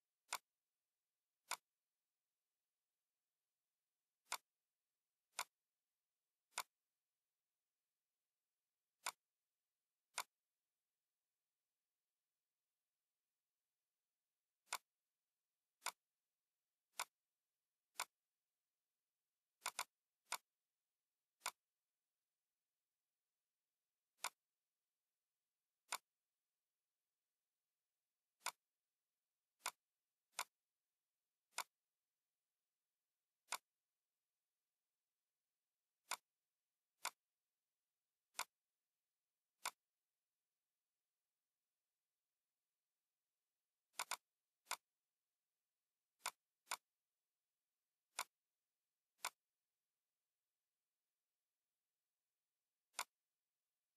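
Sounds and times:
computer mouse clicks: 0.2 - 0.5, 1.4 - 1.7, 4.2 - 4.5, 5.3 - 5.6, 6.4 - 6.8, 9.0 - 9.3, 10.1 - 10.4, 14.6 - 15.0, 15.8 - 16.1, 16.9 - 17.2, 17.9 - 18.2, 19.6 - 20.6, 21.4 - 21.7, 24.1 - 24.5, 25.8 - 26.2, 28.4 - 28.7, 29.6 - 30.6, 31.4 - 31.8, 33.4 - 33.8, 36.0 - 36.4, 37.0 - 37.3, 38.3 - 38.7, 39.6 - 40.0, 43.9 - 45.0, 46.2 - 46.9, 48.1 - 48.4, 49.1 - 49.5, 52.9 - 53.3.

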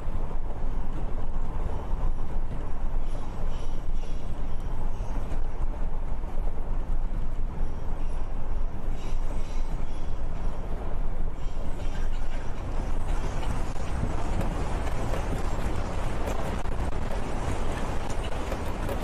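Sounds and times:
earthquake low rumble with hiss: 12.9 - 19.0.

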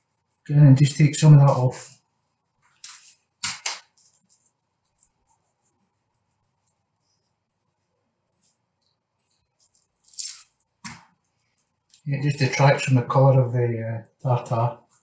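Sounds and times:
faint light scratches: 2.6 - 12.6.

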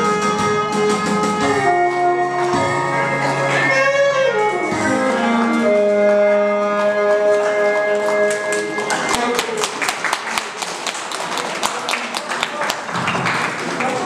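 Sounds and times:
saxophone slow melody: 0.0 - 9.0
musical accompaniment: 0.0 - 9.8.

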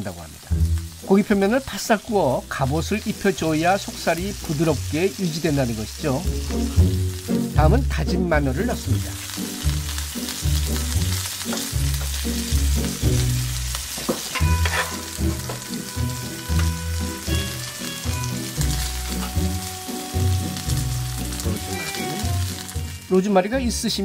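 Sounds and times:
garlic sizzling in oil: 0.0 - 24.0
spoon stirring in pan: 13.9 - 15.9.

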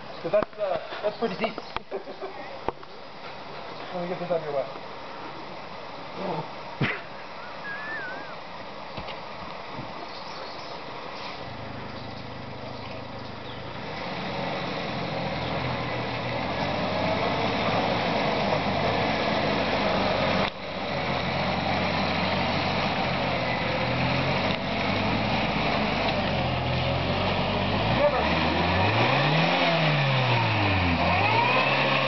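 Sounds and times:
engine running at low speed: 10.3 - 32.0.

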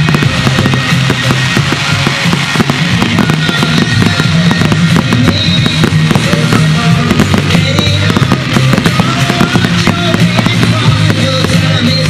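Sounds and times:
fireworks bursting and crackling: 0.0 - 12.0
loud music with low notes: 0.0 - 12.0.

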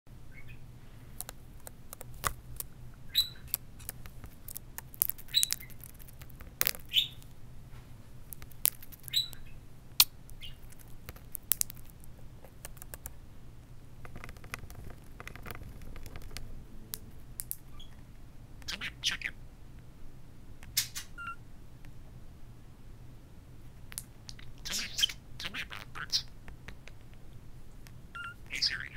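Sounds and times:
budgerigar chirps: 0.3 - 0.6, 3.1 - 3.6, 6.9 - 7.2, 9.0 - 10.6, 18.6 - 19.4, 24.3 - 26.3, 28.2 - 28.9.

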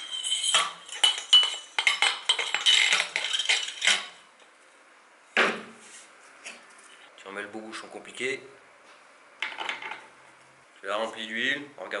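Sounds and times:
thin ringing tone: 0.0 - 3.8
metallic rattles and scrapes: 0.0 - 4.2.

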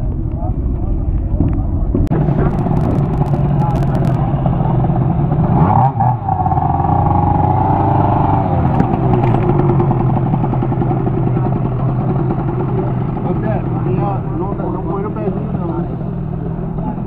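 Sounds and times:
scooter engine revving: 2.1 - 17.0.

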